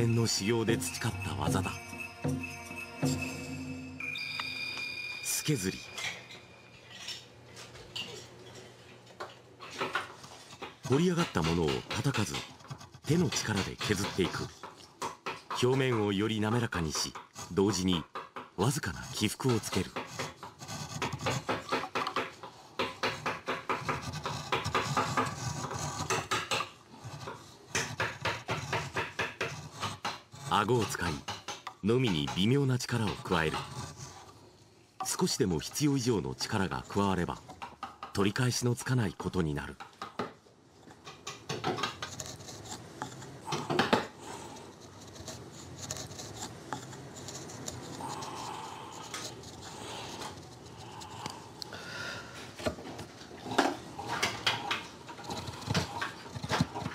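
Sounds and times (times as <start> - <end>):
chisel scraping wood: 9.6 - 34.4, 40.0 - 51.5, 52.2 - 56.9.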